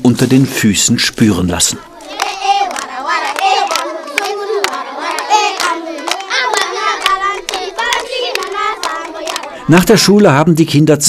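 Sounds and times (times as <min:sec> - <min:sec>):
children singing: 0:01.6 - 0:10.0
children clapping: 0:02.0 - 0:09.7.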